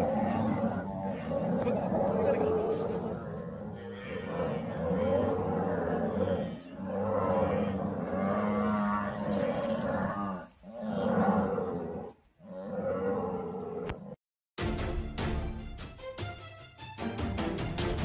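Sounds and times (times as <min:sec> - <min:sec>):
buffalo bellowing: 0:00.0 - 0:14.1.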